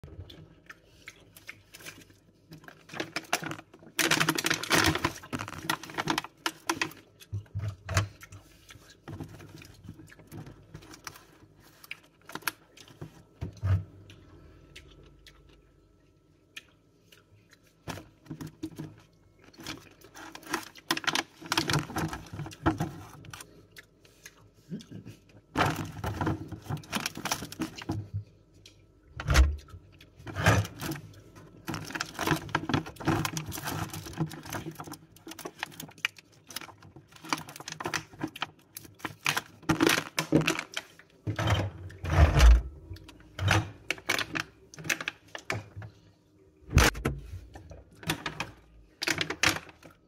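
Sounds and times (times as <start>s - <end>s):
plastic tub rustling and clicking: 1.9s - 8.2s, 17.9s - 23.4s, 25.6s - 28.2s, 30.2s - 45.9s, 46.7s - 49.9s.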